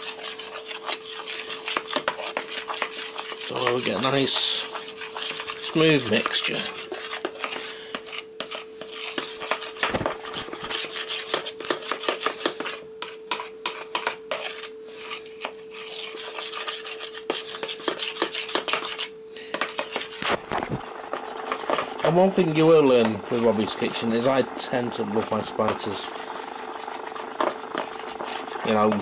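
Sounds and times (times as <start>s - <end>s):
fork beating batter in bowl: 0.0s - 29.0s.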